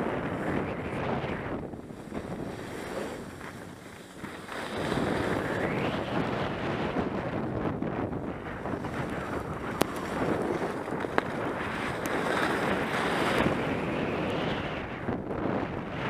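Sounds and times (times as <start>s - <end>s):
wind rushing over microphone: 0.0s - 16.0s
skis hissing over snow: 1.9s - 6.1s, 8.6s - 14.0s.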